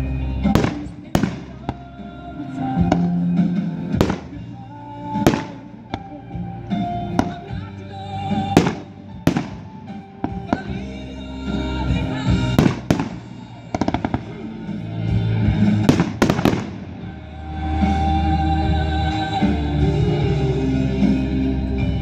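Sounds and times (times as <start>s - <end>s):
music playing: 0.0s - 22.0s
fireworks crackles: 0.5s - 1.9s, 8.4s - 10.8s, 15.7s - 17.1s
fireworks bangs: 0.5s - 2.0s, 2.7s - 6.2s, 6.8s - 7.7s, 8.3s - 10.9s, 12.4s - 14.4s, 15.6s - 17.2s.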